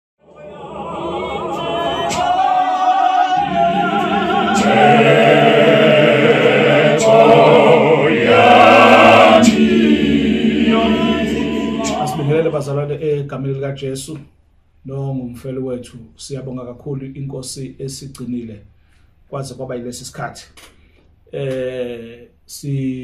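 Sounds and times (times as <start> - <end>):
choir singing with vibrato: 0.2 - 12.8.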